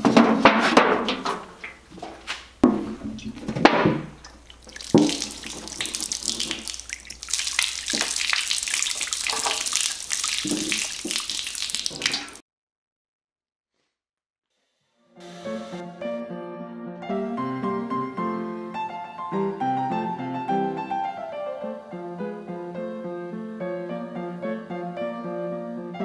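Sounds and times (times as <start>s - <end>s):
containers clunking on shelf: 0.0s - 4.2s
liquid pouring onto concrete floor: 3.1s - 12.4s.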